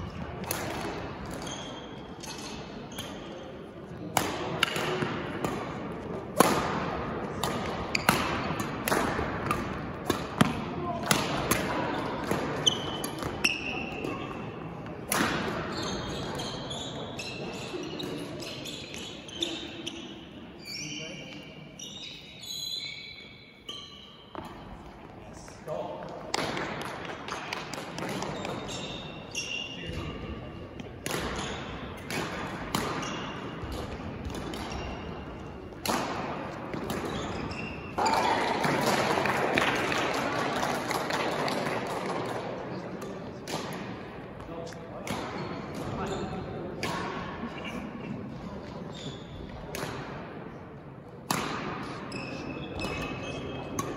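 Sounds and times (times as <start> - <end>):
shoes squeaking on court floor: 0.1 - 3.6, 7.5 - 8.7, 11.8 - 14.9, 15.5 - 25.8, 27.3 - 39.0, 44.5 - 46.7, 47.5 - 49.8, 51.9 - 53.9
racket striking shuttlecock: 0.4 - 1.5, 4.1 - 14.2, 31.0 - 38.0, 49.6 - 50.2, 51.2 - 52.0.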